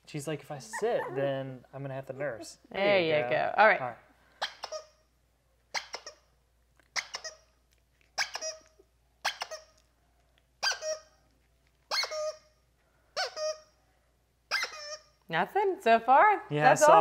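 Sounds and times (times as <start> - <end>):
squeaky toy squeaking: 0.7 - 1.3, 4.4 - 9.8, 10.6 - 11.3, 11.9 - 15.3.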